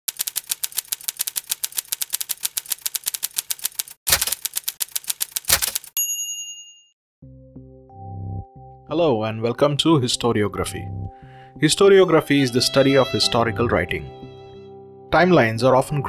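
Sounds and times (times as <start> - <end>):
typewriter keys clacking: 0.1 - 6.0
soft low chord: 7.2 - 16.0.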